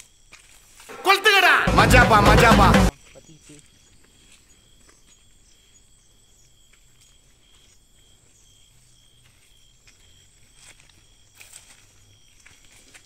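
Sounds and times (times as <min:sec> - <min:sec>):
crickets chirping: 0:02.9 - 0:12.7.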